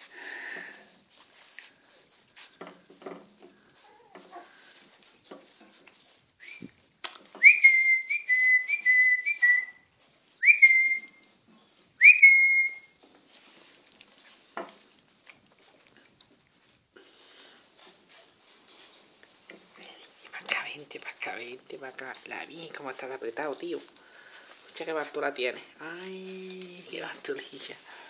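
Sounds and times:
person whistling: 6.4s - 6.7s, 7.4s - 9.8s, 10.4s - 11.2s, 12.0s - 13.0s.

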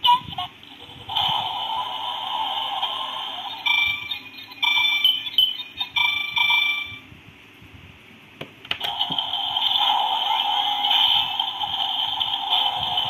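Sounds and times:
steady electronic tone: 1.2s - 7.1s.

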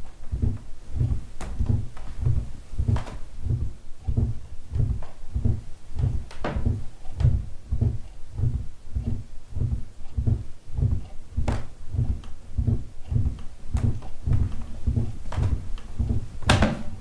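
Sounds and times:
steady low thumps: 0.0s - 17.0s.

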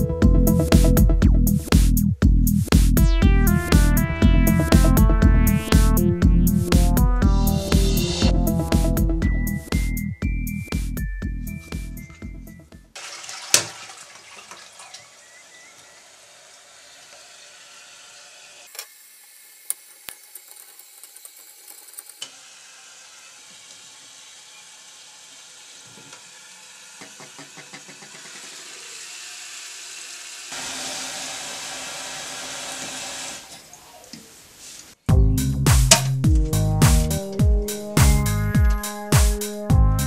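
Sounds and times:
water hissing in cistern: 13.0s - 27.4s, 28.4s - 35.0s.

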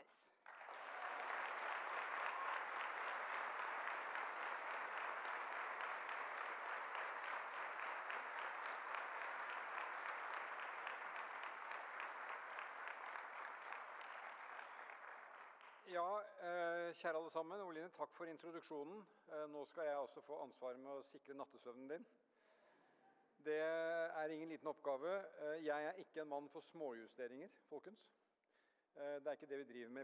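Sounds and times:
audience applauding: 0.0s - 15.8s.

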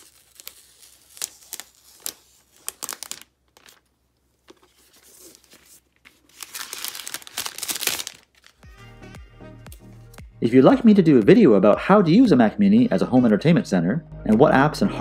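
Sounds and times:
plastic film peeling and crinkling: 0.0s - 8.6s.

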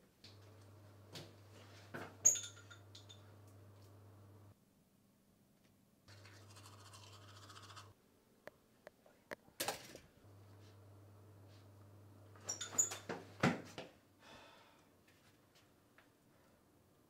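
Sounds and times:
faint low hum: 0.1s - 13.0s
toothbrush scrubbing teeth: 6.1s - 7.9s.

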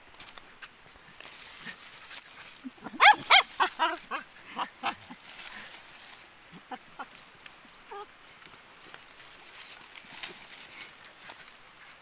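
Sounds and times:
puppies whining and yelping: 2.7s - 5.2s, 7.9s - 8.1s.

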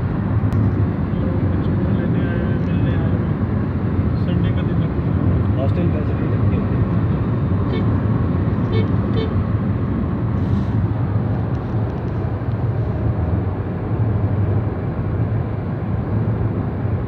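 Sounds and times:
car road and engine noise: 0.0s - 17.0s.

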